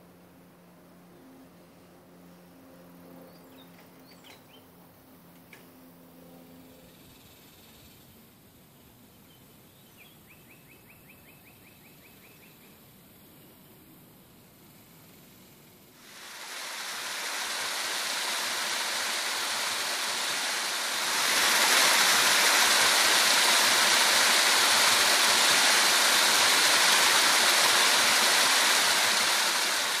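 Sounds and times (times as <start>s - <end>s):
water cascading over stone weir: 16.0s - 30.0s.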